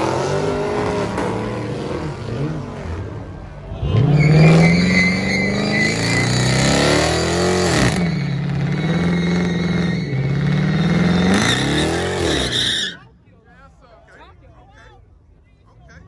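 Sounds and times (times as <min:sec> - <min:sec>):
car engine revving: 0:00.0 - 0:12.6.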